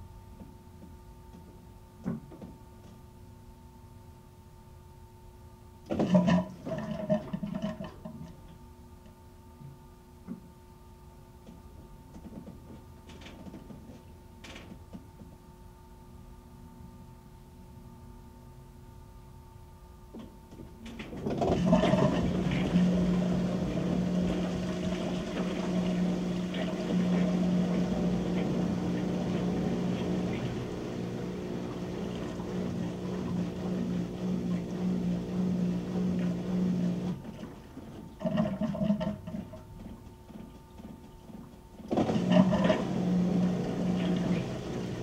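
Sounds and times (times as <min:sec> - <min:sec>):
washing machine hum: 0:05.8 - 0:15.5, 0:20.0 - 0:45.0.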